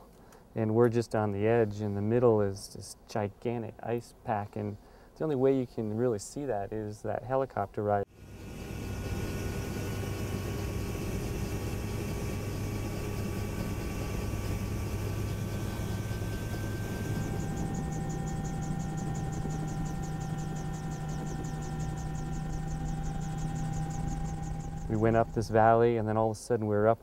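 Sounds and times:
aircraft engines droning in cabin: 8.1 - 26.2
fast even pulsing: 8.1 - 26.9.

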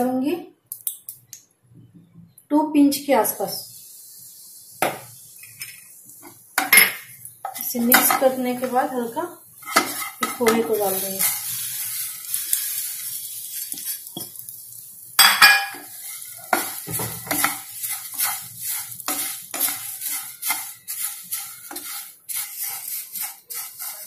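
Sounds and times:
rice sizzling in hot oil: 3.5 - 24.0
spatula clattering: 6.6 - 9.0, 9.6 - 14.5, 15.2 - 24.0
wooden spatula scraping a pan: 7.4 - 14.4, 15.6 - 24.0.

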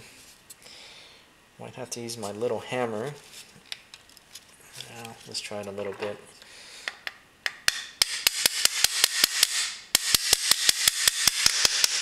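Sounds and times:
small hammer tapping: 6.9 - 12.0.

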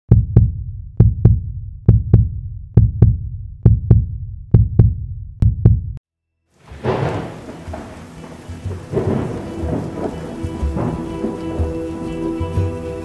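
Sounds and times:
heartbeat thumps: 0.1 - 6.0.

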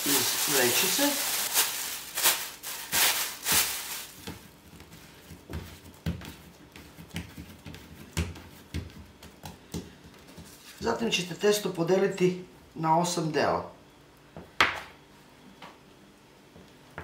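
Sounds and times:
plastic bag crinkling: 0.0 - 4.3
dough knocking on countertop: 4.2 - 10.5.

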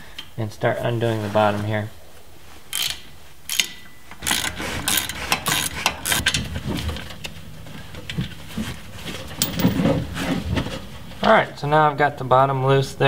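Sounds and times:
socket ratchet clicking: 2.8 - 6.4.

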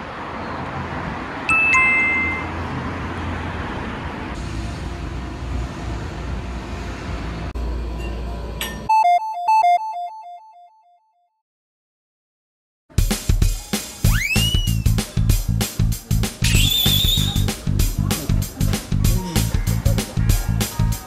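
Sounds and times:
two-tone ding-dong chime: 1.5 - 2.6
outdoor noise with low rumble: 2.8 - 8.8.

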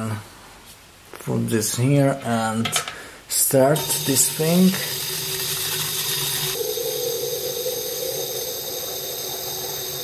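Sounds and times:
water jet hissing: 3.8 - 10.0
hum: 6.6 - 10.0.

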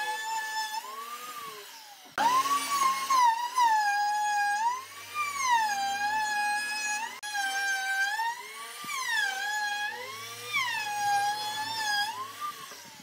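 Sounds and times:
router whining while cutting wood: 0.0 - 13.0.

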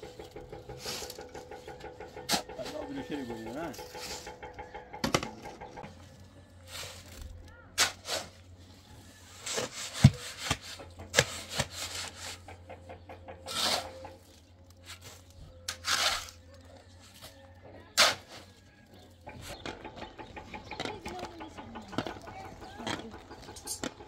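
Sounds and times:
irregular knocks: 0.0 - 6.0, 19.3 - 24.0
scraping or rustling noises: 5.8 - 12.6.

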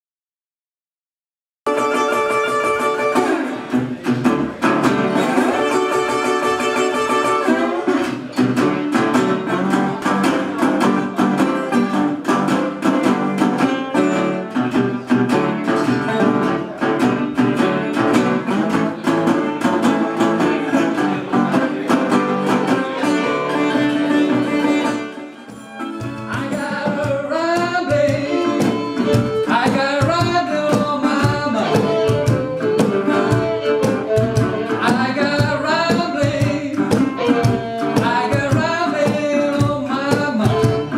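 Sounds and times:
fiddle: 1.7 - 40.9
resonator guitar fingerpicked: 1.7 - 40.9
man singing: 5.0 - 8.0, 12.8 - 25.2, 26.0 - 40.9
hand percussion: 23.5 - 40.9.

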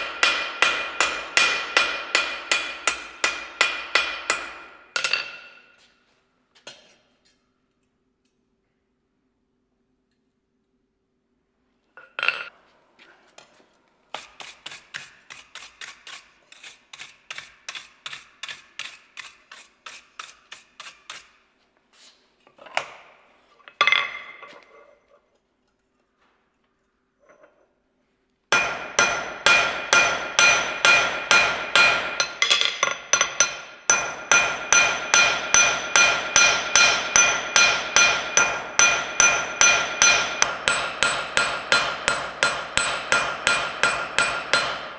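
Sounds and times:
hammer striking steel on anvil: 0.0 - 5.8, 28.5 - 44.9.

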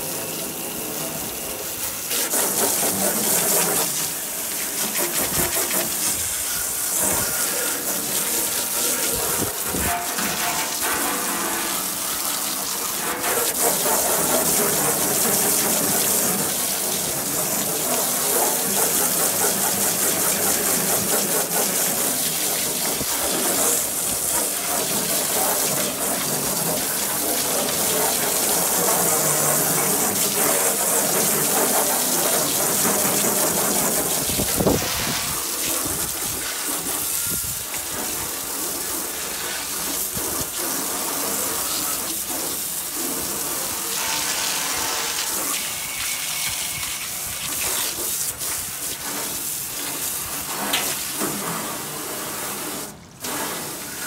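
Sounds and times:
hose spray hissing: 0.0 - 54.0
water spattering on sheet metal: 0.1 - 54.0.

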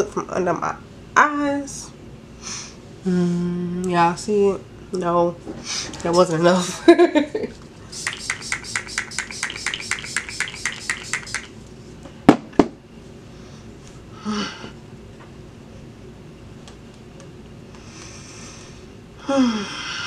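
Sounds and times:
sharp clacks: 7.9 - 11.6
spray bottle hissing sprays: 7.9 - 11.6.

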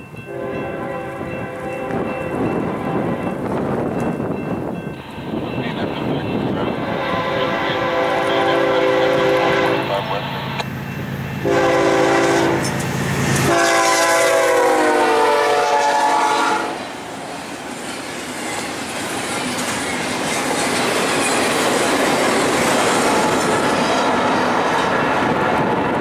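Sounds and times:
train cars rolling on rails: 0.0 - 26.0
locomotive air horn blasts: 0.3 - 3.3, 6.7 - 10.6, 11.4 - 12.8, 13.4 - 17.0.

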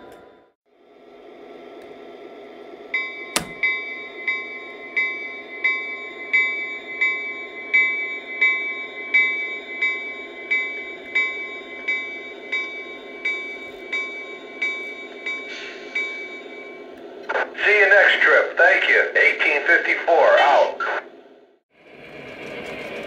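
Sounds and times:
model train bell ringing: 2.9 - 16.9
model train rumble: 21.7 - 23.0.

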